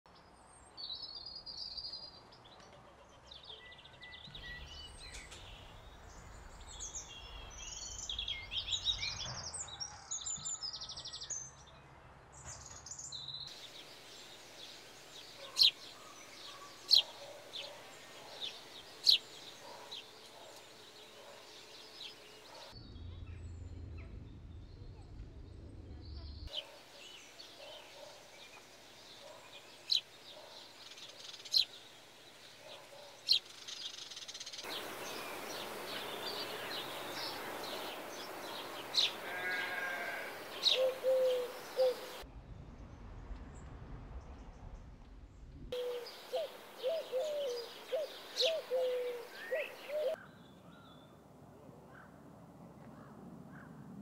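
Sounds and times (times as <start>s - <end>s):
wild birds singing: 0.4s - 11.7s, 12.4s - 42.3s, 45.7s - 51.3s
low rumble: 22.8s - 26.5s
loud sharp bird chirps: 33.2s - 42.2s.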